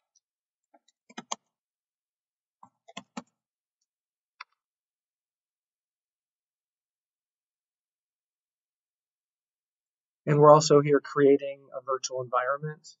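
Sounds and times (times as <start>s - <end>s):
keyboard keys clicking: 0.7s - 1.5s, 2.6s - 3.4s.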